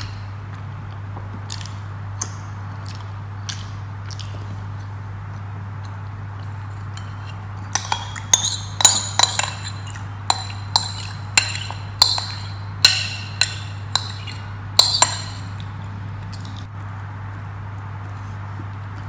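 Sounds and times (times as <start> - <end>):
metal spoon clinking on bowl: 7.0 - 15.7.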